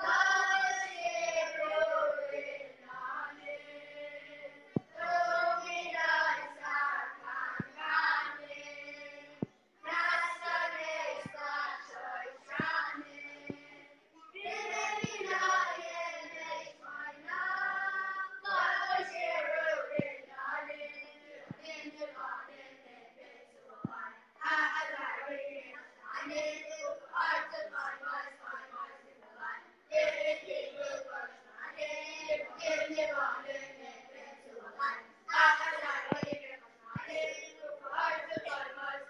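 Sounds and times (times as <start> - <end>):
boys' choir singing: 0.0 - 28.9, 29.9 - 39.0.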